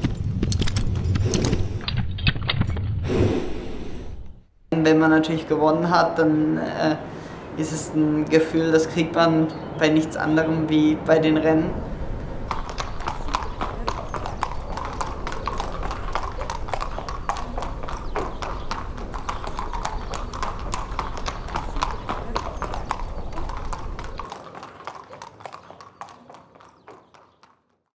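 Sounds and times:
horse hooves clip-clopping: 0.0 - 2.9, 12.2 - 27.8.

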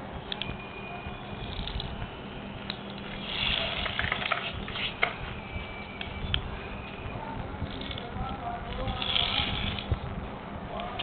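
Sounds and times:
toy car spring motor whirring: 1.4 - 1.9, 3.0 - 5.0, 7.7 - 9.9.

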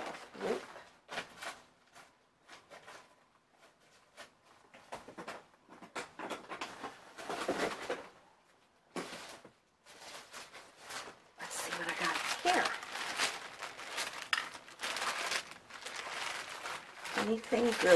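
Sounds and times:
bags and papers rustling: 9.0 - 17.9.

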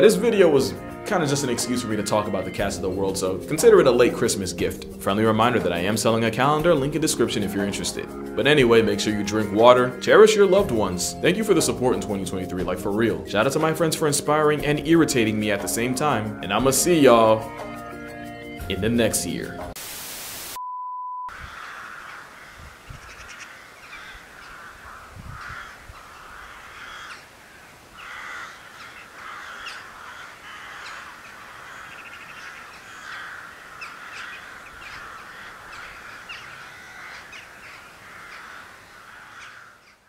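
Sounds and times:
faint outdoor background: 0.0 - 40.0
steady beep tone: 20.6 - 21.3
harsh animal calls: 21.3 - 40.0.

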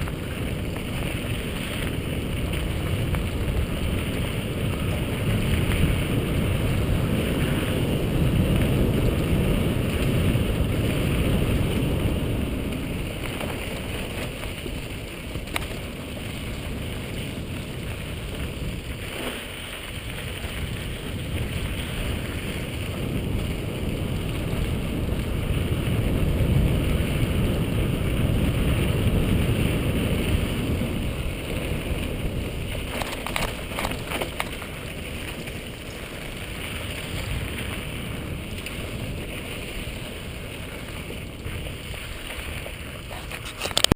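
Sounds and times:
bike rumbling and rattling on dirt: 0.0 - 43.9
wind buffeting microphone: 0.0 - 43.9.

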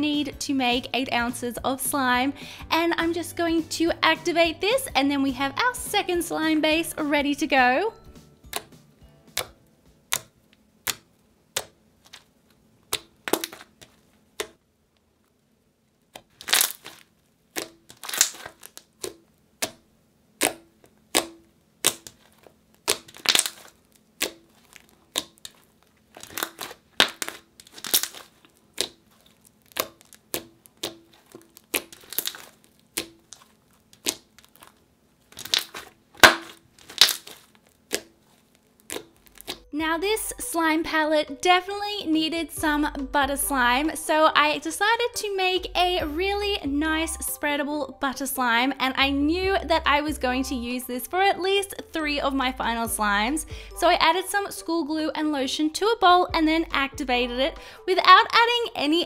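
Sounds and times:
slime sticky pops and crackles: 9.3 - 14.6, 16.1 - 39.7.

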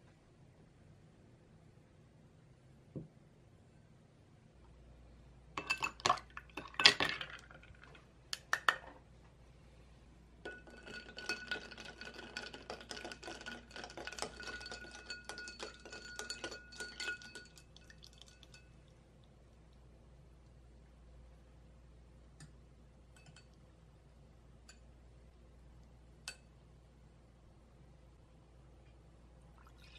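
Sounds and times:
spoon stirring ice in glass: 5.6 - 7.6, 10.5 - 18.8
ice cubes clinking into glass: 10.5 - 18.6.

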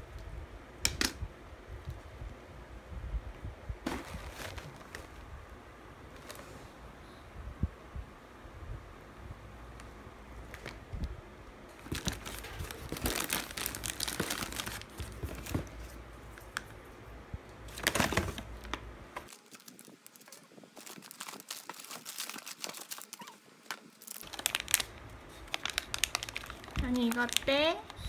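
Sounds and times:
plastic packaging crinkling: 11.7 - 16.7, 17.7 - 28.0.

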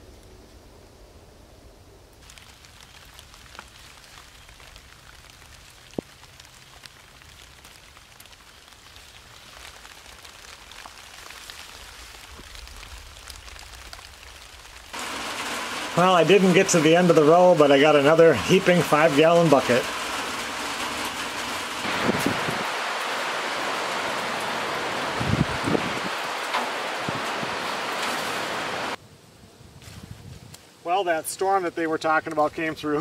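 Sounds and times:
light rain pattering on plants: 2.1 - 29.0, 29.8 - 33.0.

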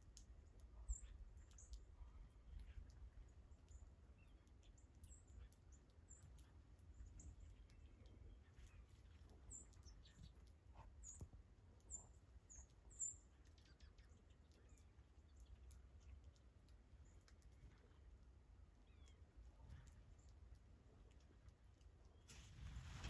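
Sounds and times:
small songbirds chipping: 0.0 - 23.0.

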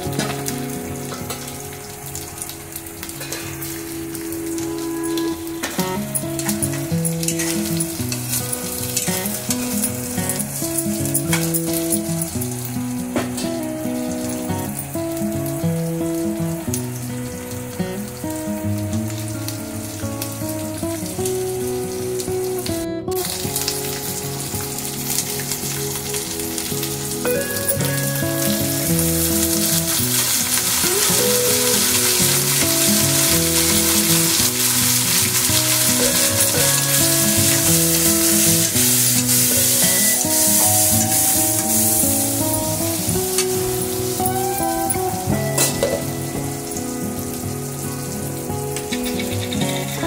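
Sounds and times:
background music: 0.0 - 50.0
vegetables sizzling in oil: 0.0 - 50.0.

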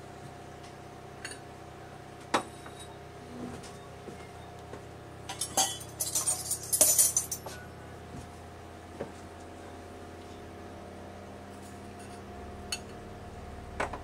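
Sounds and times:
steady low hum: 0.0 - 14.0
kitchen items clinking: 5.3 - 7.7.

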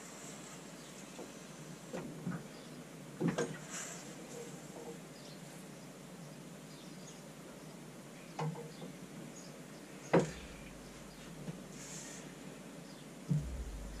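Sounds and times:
beer pump knocks: 13.3 - 14.0.

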